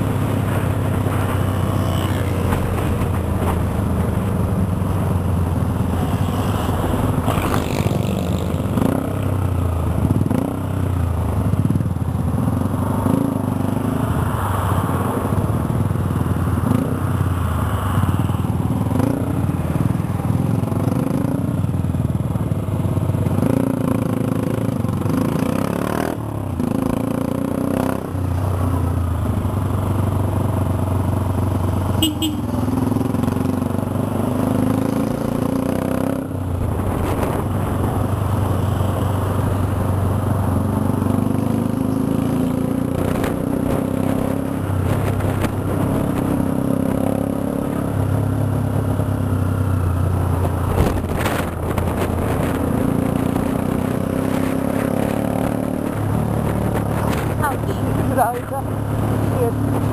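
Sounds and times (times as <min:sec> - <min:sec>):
motorcycle engine revving: 0:00.0 - 0:11.8, 0:29.7 - 0:59.9
road noise: 0:00.0 - 0:59.9.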